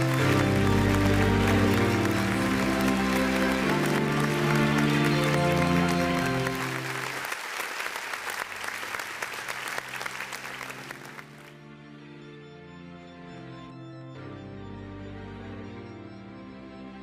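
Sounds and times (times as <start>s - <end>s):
music playing: 0.0s - 7.3s, 8.4s - 17.0s
large audience applauding: 0.0s - 11.6s.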